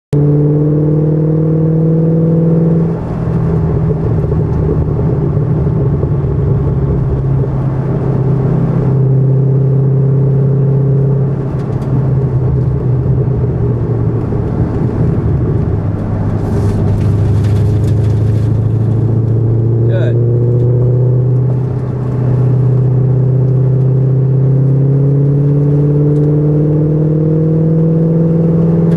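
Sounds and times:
road and wind noise: 0.1 - 28.9
car engine from inside cabin: 0.2 - 28.9.

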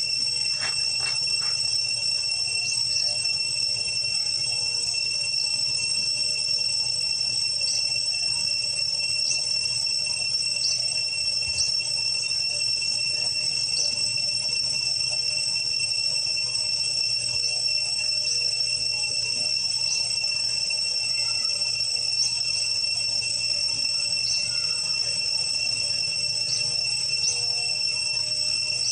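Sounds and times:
insects droning: 0.0 - 28.9.

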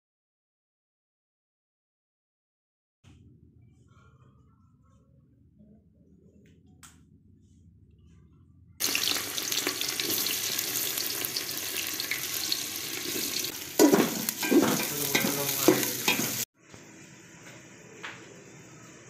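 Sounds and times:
onions sizzling in hot oil: 8.8 - 16.5
stirring scraping against pot: 12.1 - 16.5.

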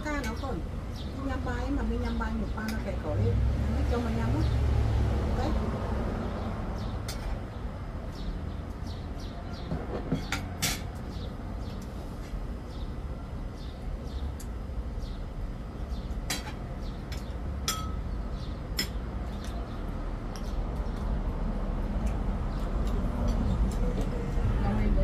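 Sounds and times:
cutlery clinking on plates: 9.7 - 11.0, 16.3 - 18.0.

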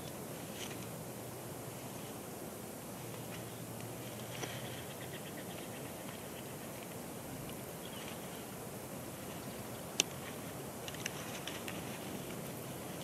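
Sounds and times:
outdoor hiss: 0.0 - 13.0
faint clicks: 9.9 - 12.4.

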